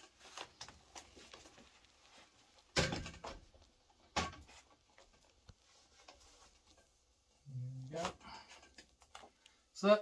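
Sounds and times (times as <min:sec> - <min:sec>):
hollow clunks of ceiling tile: 0:02.6 - 0:07.0.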